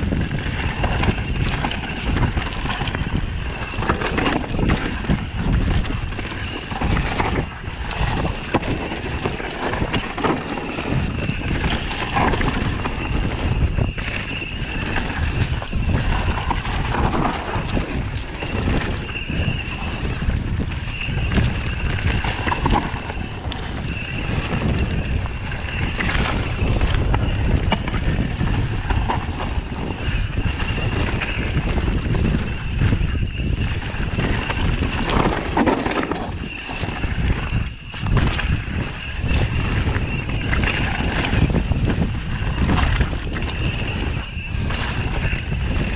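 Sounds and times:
bike tyre rumble: 0.0s - 45.9s
wind buffeting microphone: 0.0s - 45.9s
bike clattering over roots: 0.2s - 14.2s.

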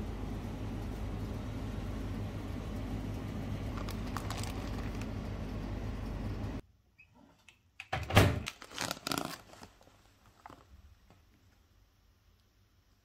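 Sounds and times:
refrigerated shelf humming: 0.0s - 13.0s
plastic wrapper crinkling: 3.7s - 5.2s, 8.4s - 10.9s.

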